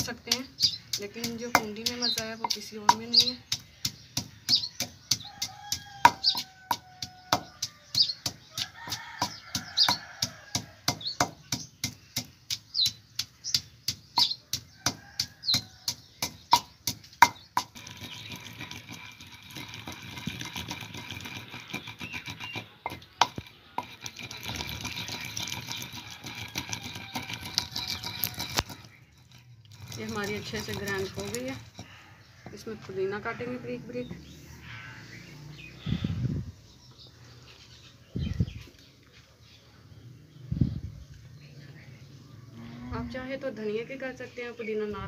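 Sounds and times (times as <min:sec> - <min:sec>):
pestle pounding in stone mortar: 0:00.0 - 0:32.6
pestle scraping against stone: 0:00.0 - 0:32.8.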